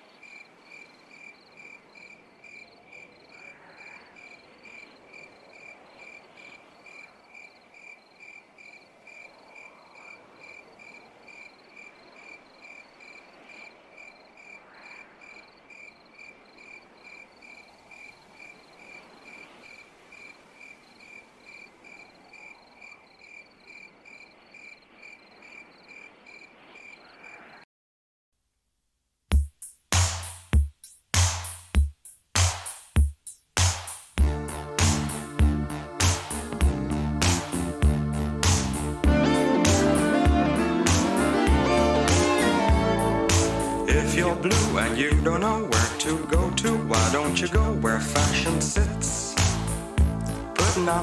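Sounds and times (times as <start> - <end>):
cricket chirping: 0.0 - 27.6
faint hiss: 48.2 - 51.0.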